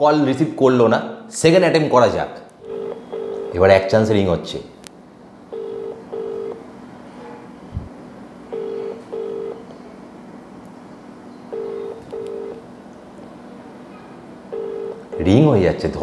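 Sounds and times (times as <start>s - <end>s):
telephone ringback tone: 2.6s - 3.6s, 5.5s - 6.6s, 8.5s - 9.6s, 11.5s - 12.6s, 14.5s - 15.3s.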